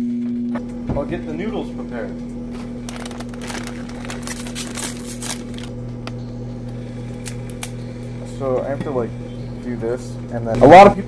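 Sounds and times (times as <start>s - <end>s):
microwave humming: 0.0s - 11.0s
plastic packet crinkling: 2.5s - 5.8s.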